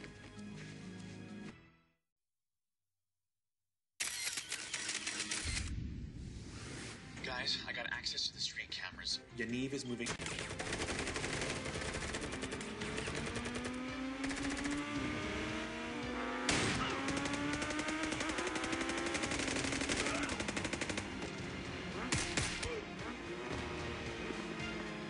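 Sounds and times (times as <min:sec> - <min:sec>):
automatic gunfire: 0:10.2 - 0:15.0, 0:16.4 - 0:21.4, 0:22.0 - 0:22.8.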